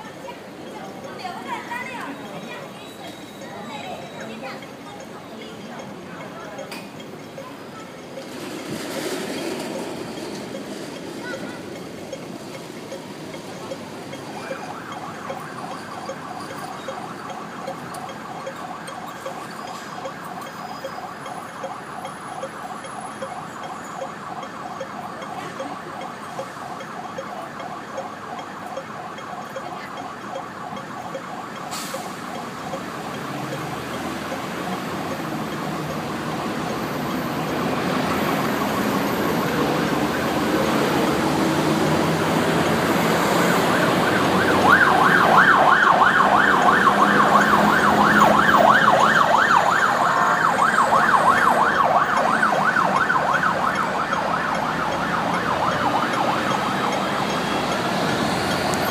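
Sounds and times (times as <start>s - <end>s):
engine and traffic noise: 0.0s - 58.9s
siren yelping: 12.9s - 58.9s.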